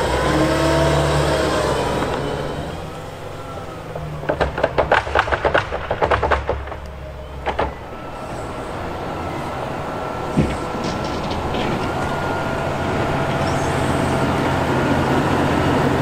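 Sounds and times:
diesel engine running: 0.0s - 16.0s
sharp clattering knocks: 3.8s - 8.7s, 10.3s - 14.8s.

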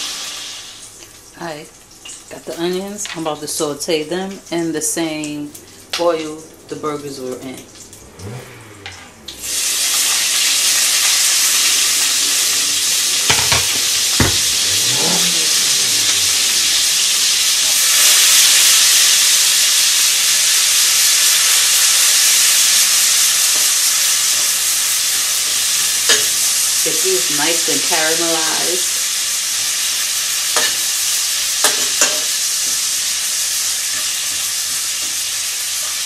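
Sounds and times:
onions sizzling in hot oil: 0.0s - 3.2s, 9.4s - 36.0s
utensil knocking against pan: 13.3s - 14.5s.

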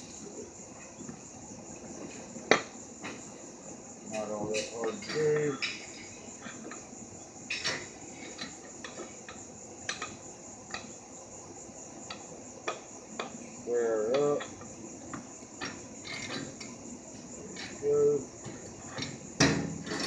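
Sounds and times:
metal clicks and clanks of tools: 15.6s - 16.8s.

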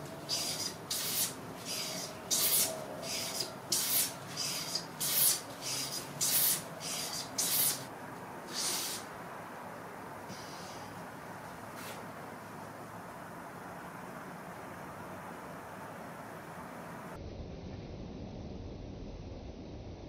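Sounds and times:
hand plane cutting strokes: 0.0s - 7.9s.

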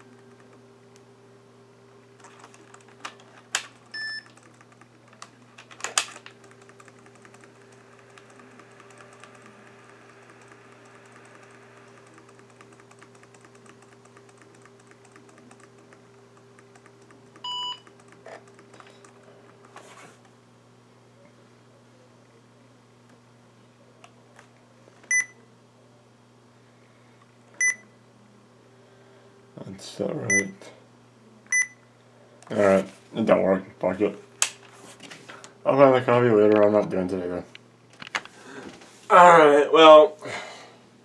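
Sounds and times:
steady low hum: 0.0s - 41.0s
keyboard clicks: 2.2s - 9.5s, 10.1s - 19.7s.

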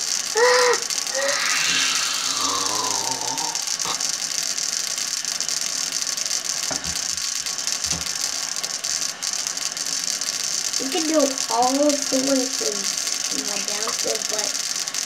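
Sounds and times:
steady hiss: 0.0s - 15.0s
brief falling tone: 1.1s - 4.1s.

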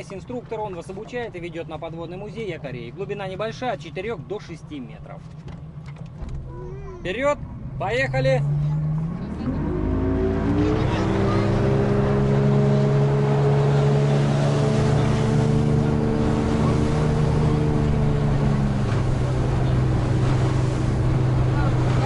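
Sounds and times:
speedboat motor revving: 7.4s - 22.0s.

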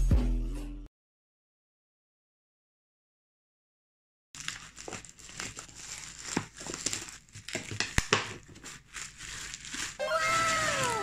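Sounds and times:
plastic mailer crinkling: 4.4s - 11.0s.

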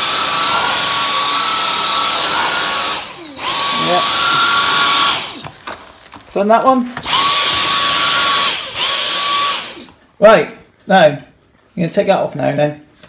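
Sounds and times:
vacuum motor whine: 0.0s - 5.5s, 7.0s - 10.0s.

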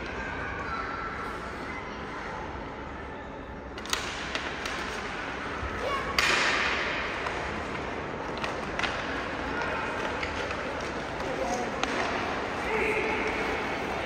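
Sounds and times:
steady background noise: 0.0s - 14.0s
sharp cracks: 6.0s - 12.5s.

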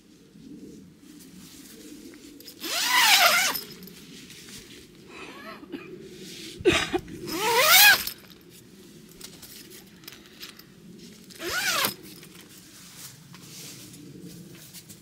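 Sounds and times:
zipper being pulled: 2.5s - 3.9s, 7.3s - 8.4s, 11.3s - 12.3s.

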